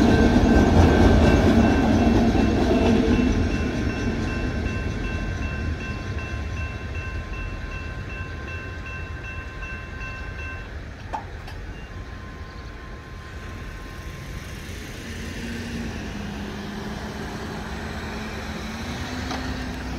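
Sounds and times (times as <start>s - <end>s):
railroad crossing bell ringing: 0.0s - 19.6s
pickup truck engine: 16.2s - 19.9s.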